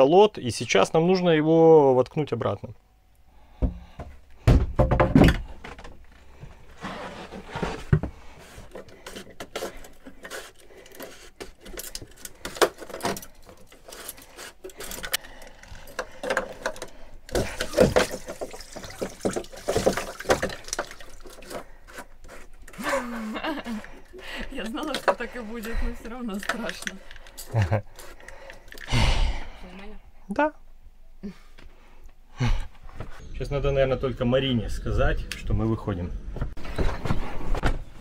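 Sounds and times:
clicks and knocks of plastic: 7.6s - 22.8s.

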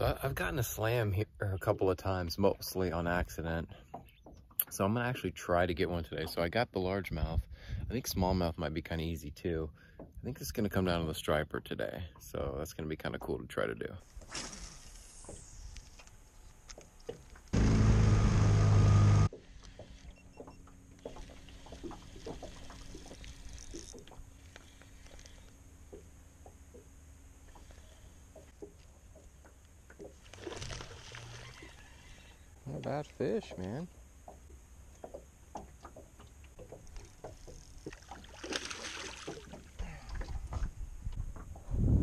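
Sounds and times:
faint steady hum: 4.6s - 42.0s
boat motor running: 16.8s - 41.7s
fishing rod and reel clicks: 19.6s - 25.6s
fish splashing at surface: 37.8s - 40.7s
low handling knocks and rumble: 39.3s - 42.0s.

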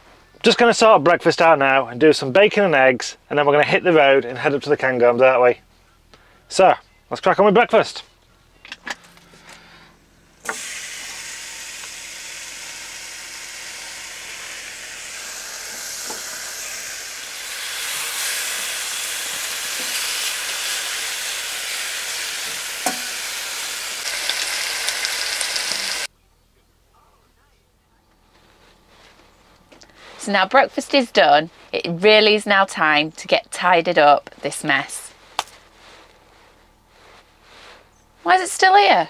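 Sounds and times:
bacon and eggs sizzling: 10.4s - 26.1s.

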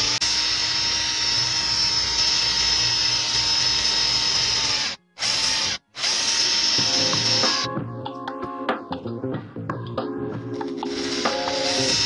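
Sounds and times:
cordless drill whining: 0.0s - 7.7s, 10.7s - 12.0s.

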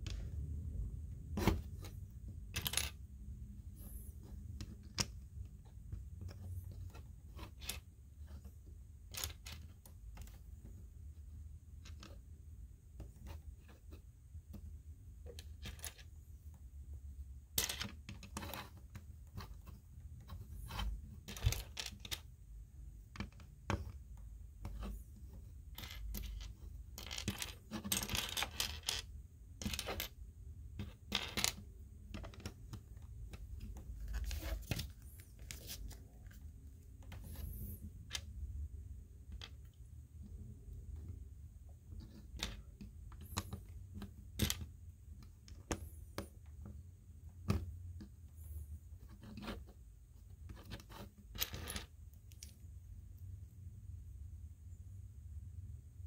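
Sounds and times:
rustling: 32.2s - 38.3s.

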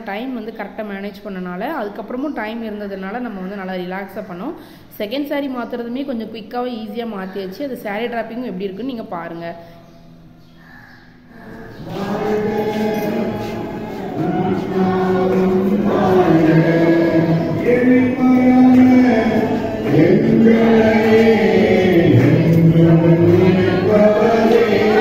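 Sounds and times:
group singing a hymn: 11.3s - 25.0s.

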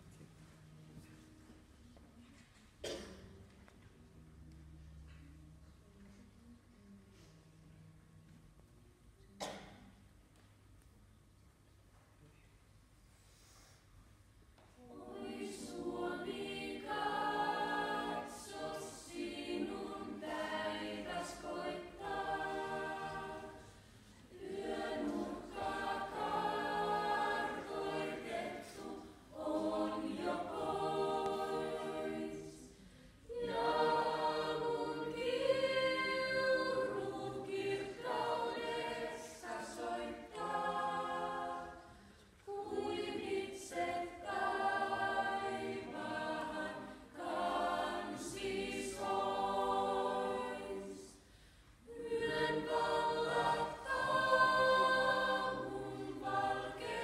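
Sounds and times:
young voices singing unaccompanied: 14.8s - 57.0s.

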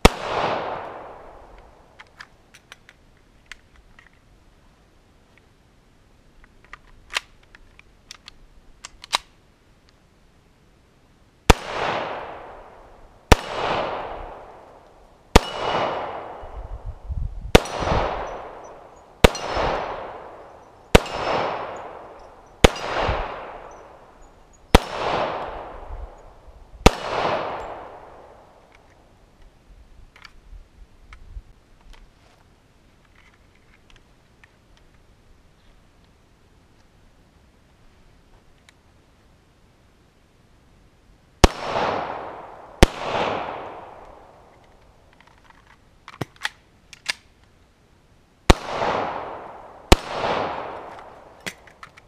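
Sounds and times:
pistol shots echoing: 0.0s - 1.5s, 11.5s - 14.7s, 15.3s - 16.6s, 17.5s - 24.1s, 24.7s - 25.9s, 26.8s - 28.5s, 41.4s - 44.5s, 48.5s - 51.6s
pistol handling clicks: 6.6s - 9.3s, 44.0s - 47.4s.

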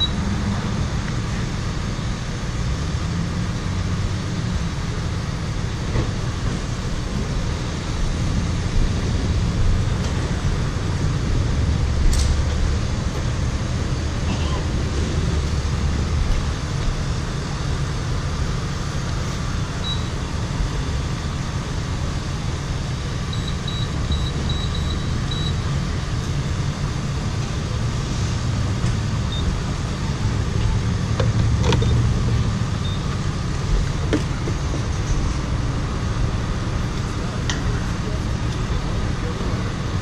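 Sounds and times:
keypad beeps: 0.0s - 0.2s, 23.3s - 25.6s.

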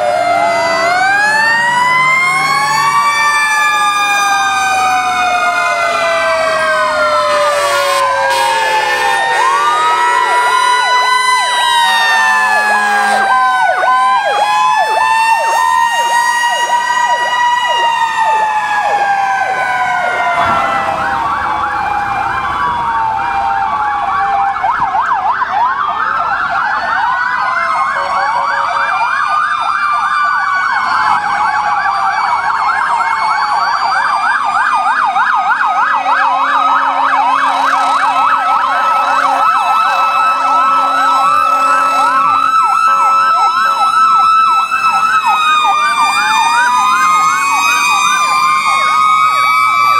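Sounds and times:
fire truck sirens wailing: 0.0s - 49.9s
siren yelping: 0.0s - 49.9s.

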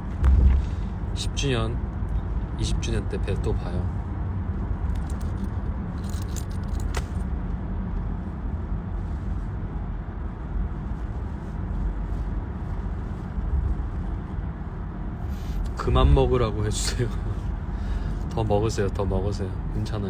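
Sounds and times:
car cabin rumble: 0.0s - 3.6s.

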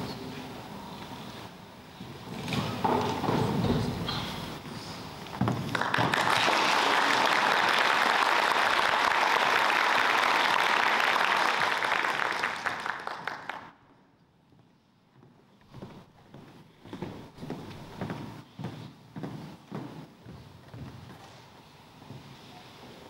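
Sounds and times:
audience applauding: 5.6s - 13.8s.

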